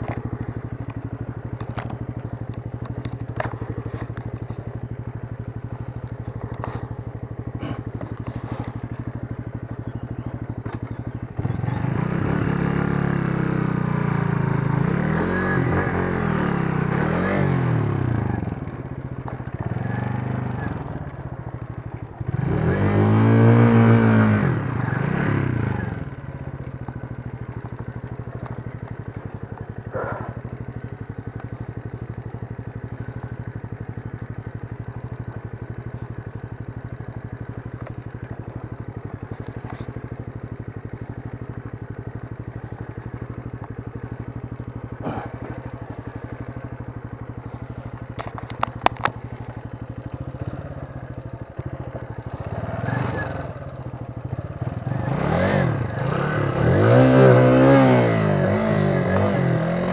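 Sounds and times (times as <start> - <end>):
motorcycle engine idling: 0.0 - 59.9
motorcycle engine revving: 0.0 - 59.9.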